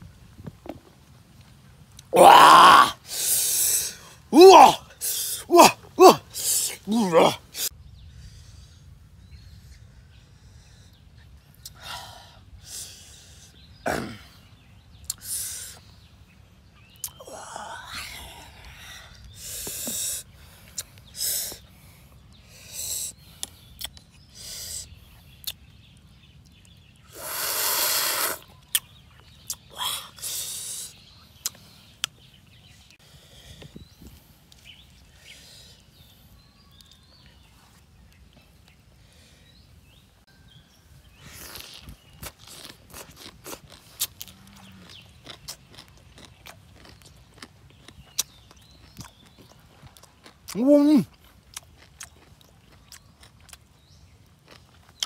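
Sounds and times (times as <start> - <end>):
man eating with mouth noises: 15.0 - 15.8, 22.6 - 25.7, 26.4 - 32.2, 41.2 - 53.7.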